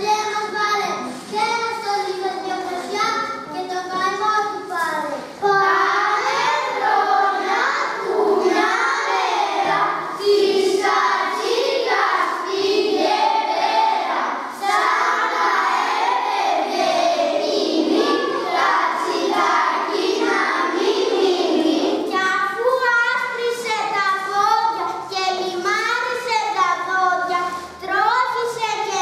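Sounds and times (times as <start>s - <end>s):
children singing in unison: 5.4s - 22.1s.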